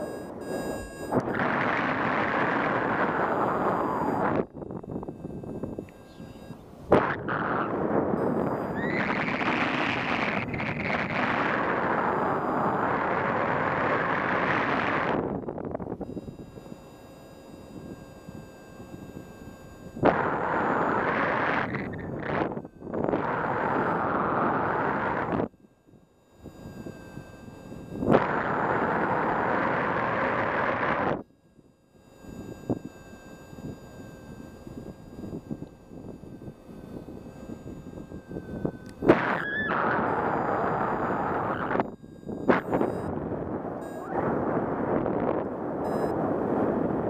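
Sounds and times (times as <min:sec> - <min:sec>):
wind rushing over microphone: 0:00.0 - 0:06.0, 0:06.8 - 0:16.5, 0:20.0 - 0:25.5, 0:27.9 - 0:31.2, 0:34.8 - 0:47.0.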